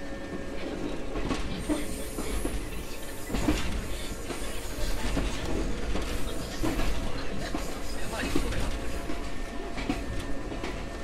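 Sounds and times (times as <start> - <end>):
train running rumble: 0.0 - 11.0.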